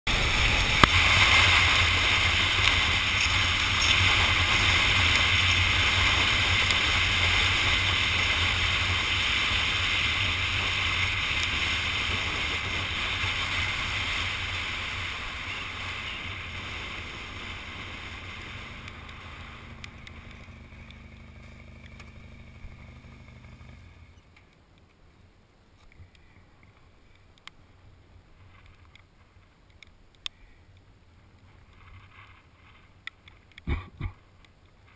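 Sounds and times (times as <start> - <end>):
motorcycle engine hum: 0.1 - 34.9
faint clicks: 18.8 - 22.2, 25.7 - 27.6, 28.4 - 34.9.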